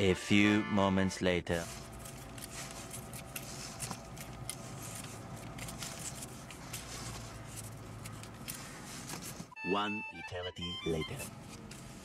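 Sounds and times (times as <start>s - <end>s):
strap webbing rustling: 1.5s - 9.6s, 11.2s - 12.0s.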